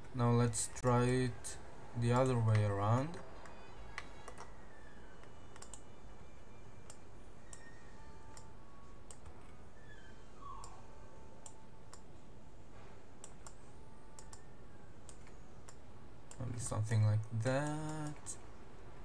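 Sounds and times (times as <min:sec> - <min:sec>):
computer mouse clicking: 0:02.1 - 0:04.5, 0:05.2 - 0:05.9, 0:06.8 - 0:07.7, 0:08.3 - 0:09.4, 0:11.4 - 0:12.1, 0:13.2 - 0:13.6, 0:14.2 - 0:18.3.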